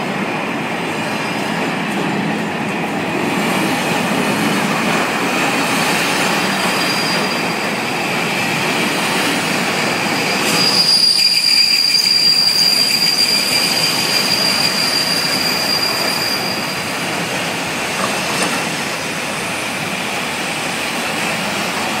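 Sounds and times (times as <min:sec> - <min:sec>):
high-pitched wheel squeal: 0:06.4 - 0:07.8, 0:10.0 - 0:17.0.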